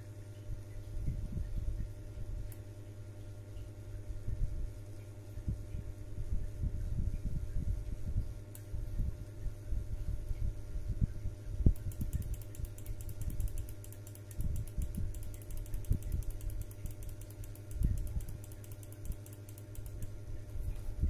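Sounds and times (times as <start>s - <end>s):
steady low hum: 0.0s - 21.0s
mouse scroll wheel clicks: 11.8s - 20.1s.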